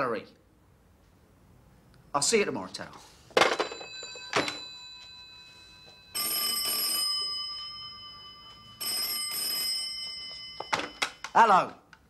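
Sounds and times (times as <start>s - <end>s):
landline telephone ringing: 3.4s - 11.5s.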